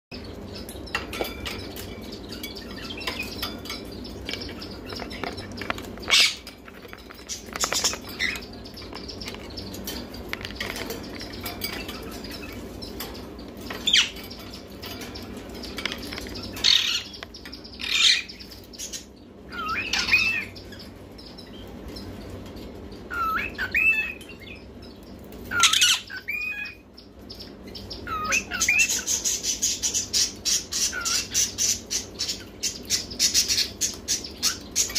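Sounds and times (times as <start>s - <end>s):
parakeets squawking: 0.1s - 34.9s
parakeets warbling whistled calls: 0.2s - 21.6s, 23.1s - 24.6s, 25.4s - 34.9s.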